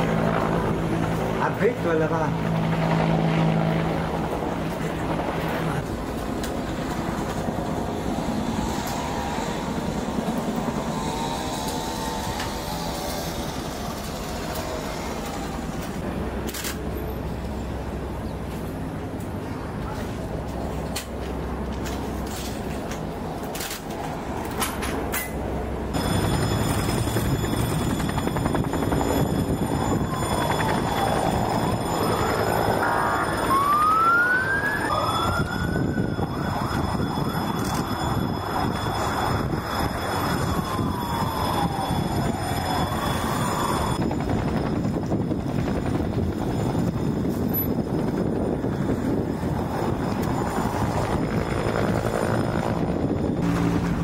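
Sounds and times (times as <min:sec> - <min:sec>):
steady background noise: 0:00.0 - 0:54.0
emergency siren wailing: 0:02.3 - 0:16.3, 0:25.9 - 0:54.0.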